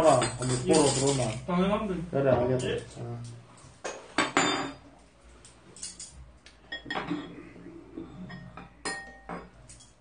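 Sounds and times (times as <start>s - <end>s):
spoon and chopsticks clinking bowls: 0.0s - 1.5s, 5.8s - 7.4s, 8.2s - 10.0s.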